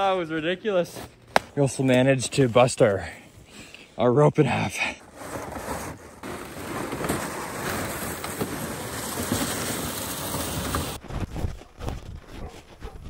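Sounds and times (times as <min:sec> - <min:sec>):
plastic sleds scraping over snow: 0:04.8 - 0:13.0.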